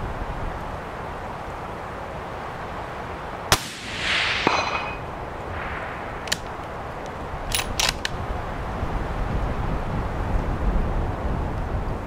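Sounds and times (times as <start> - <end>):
suppressed rifle shot with echo: 3.5 - 4.9
rifle bolt clicking: 6.2 - 6.6, 7.5 - 8.2.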